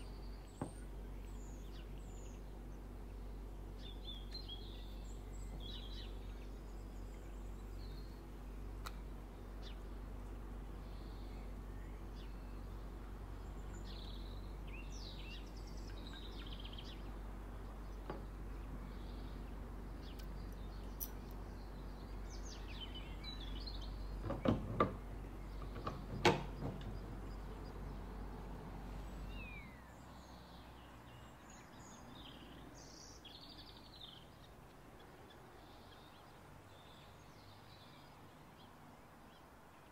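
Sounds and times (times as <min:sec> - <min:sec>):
steady low hum: 0:00.0 - 0:37.3
faint bird chirps: 0:10.7 - 0:28.3, 0:29.0 - 0:39.9.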